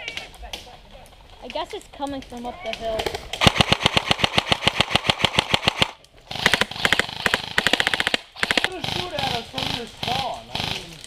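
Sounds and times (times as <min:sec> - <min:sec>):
airsoft rifle full-auto bursts: 0:03.4 - 0:10.8.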